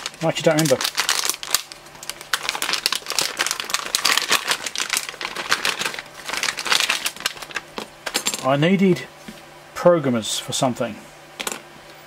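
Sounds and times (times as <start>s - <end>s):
plastic bags crinkling: 0.0s - 8.4s.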